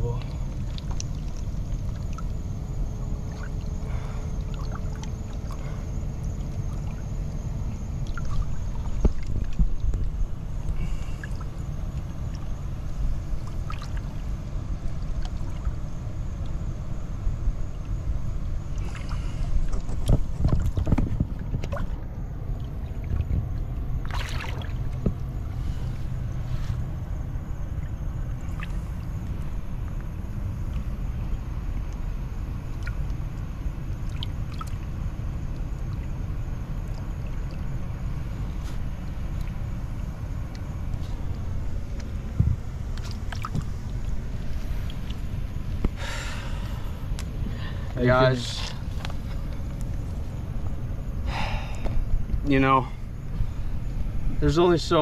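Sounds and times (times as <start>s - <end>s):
water splashes and drips: 0.0s - 2.4s, 3.3s - 7.1s, 8.0s - 12.6s, 13.3s - 14.3s, 14.9s - 15.8s, 18.7s - 25.4s, 32.6s - 39.8s, 42.9s - 46.3s
steady low rumble: 0.0s - 55.0s
wind: 0.0s - 55.0s
rushing water: 18.7s - 25.3s.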